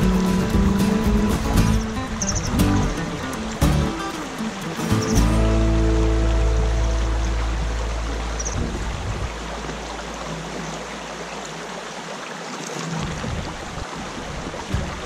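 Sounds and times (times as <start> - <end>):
low background music note: 0.0 - 10.2
stream water flowing: 0.0 - 15.0.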